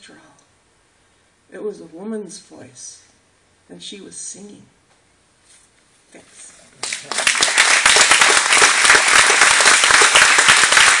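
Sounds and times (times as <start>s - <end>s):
audience applause: 6.8s - 11.0s.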